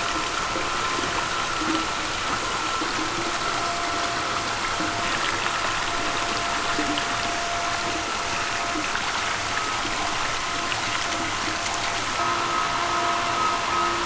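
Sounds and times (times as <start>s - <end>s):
eels thrashing and splashing water: 0.0s - 12.2s
flowing water: 0.0s - 14.0s
steady high whine: 12.0s - 14.0s.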